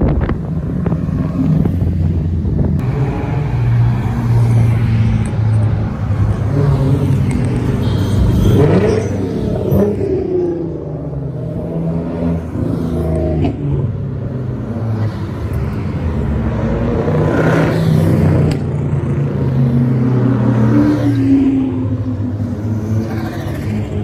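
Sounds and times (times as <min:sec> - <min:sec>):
cars driving past: 0:00.0 - 0:24.0.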